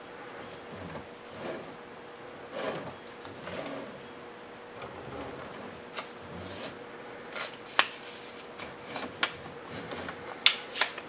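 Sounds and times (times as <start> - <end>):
paper rustling and scraping: 5.0 - 11.0.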